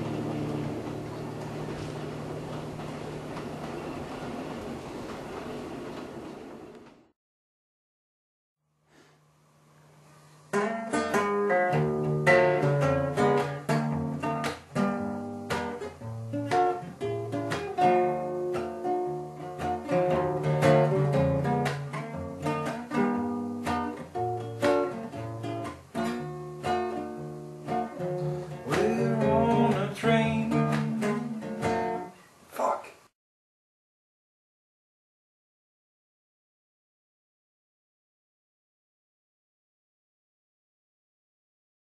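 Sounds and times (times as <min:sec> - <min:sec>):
classical guitar: 0:00.0 - 0:04.0, 0:10.5 - 0:32.2.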